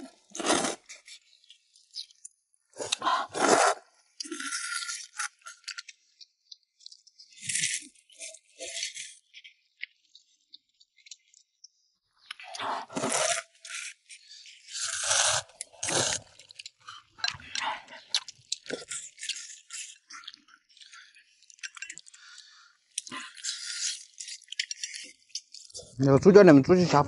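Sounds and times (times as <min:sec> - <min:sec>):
chewing: 0:00.1 - 0:11.5, 0:12.2 - 0:26.0
noisy slurping: 0:12.5 - 0:25.9.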